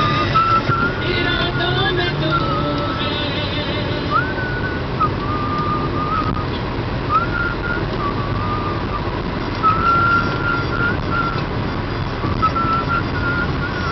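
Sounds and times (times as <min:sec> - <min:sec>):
thin high melody: 0:00.0 - 0:06.5
car road and engine noise: 0:00.0 - 0:13.9.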